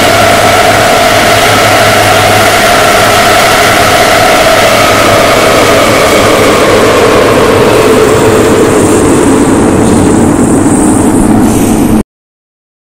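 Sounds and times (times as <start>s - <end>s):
thin high whine: 0.0s - 12.0s.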